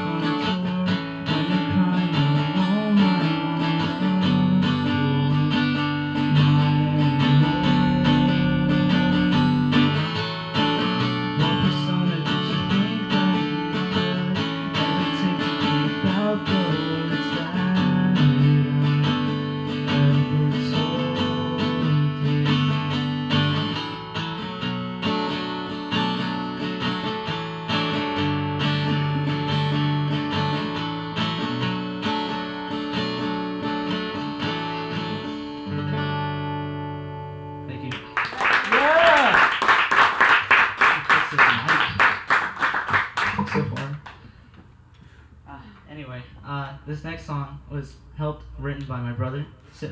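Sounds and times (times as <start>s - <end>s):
acoustic guitar chords: 0.0s - 45.4s.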